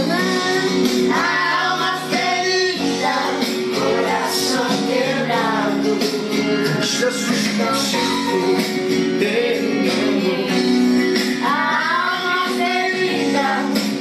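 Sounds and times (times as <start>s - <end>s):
girls singing along: 0.0s - 6.7s, 9.2s - 10.8s, 11.4s - 14.0s
guitar accompaniment: 0.0s - 14.0s
recorded gospel song playing: 0.0s - 14.0s.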